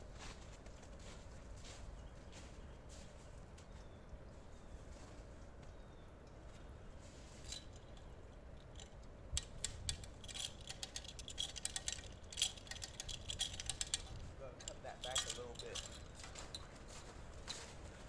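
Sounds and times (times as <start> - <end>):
winch ratcheting clicks: 7.5 - 16.2.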